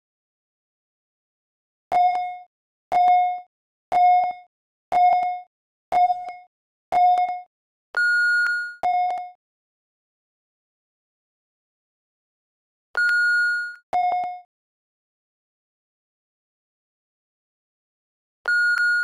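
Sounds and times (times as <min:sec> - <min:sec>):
short timer beeps: 0:13.0 - 0:14.4, 0:18.5 - 0:19.0
long high-pitched beep: 0:13.0 - 0:14.5, 0:18.5 - 0:19.0.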